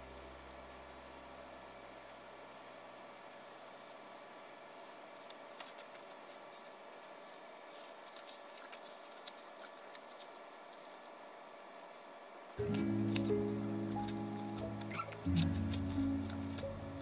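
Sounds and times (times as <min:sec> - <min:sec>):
paper prints handled on a desk: 0:05.1 - 0:11.2
music: 0:12.6 - 0:17.0.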